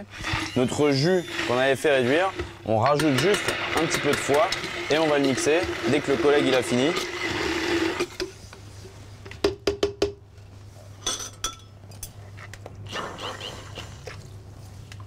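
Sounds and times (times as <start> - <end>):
immersion blender running: 1.3 - 8.1.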